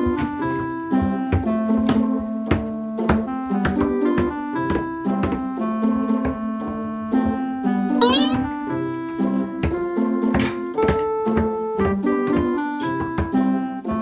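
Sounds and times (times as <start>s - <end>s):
background music with steady beat: 0.0s - 8.6s.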